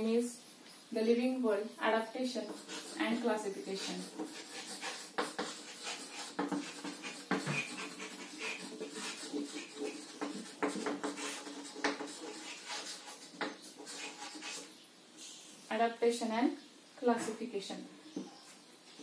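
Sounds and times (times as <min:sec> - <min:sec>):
chalk tapping on blackboard: 0:02.3 - 0:14.7.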